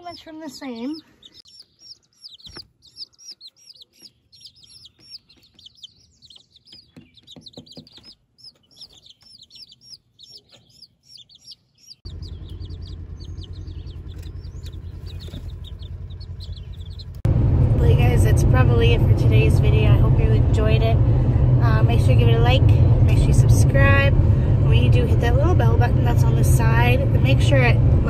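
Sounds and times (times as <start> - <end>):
chicks peeping: 0.0 - 17.2
low rumble: 12.0 - 28.0.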